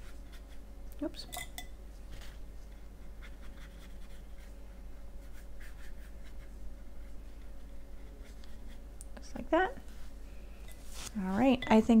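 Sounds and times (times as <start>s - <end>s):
faint steady hum: 0.0s - 12.0s
paintbrush scratching on paper: 3.0s - 4.6s, 5.2s - 8.9s.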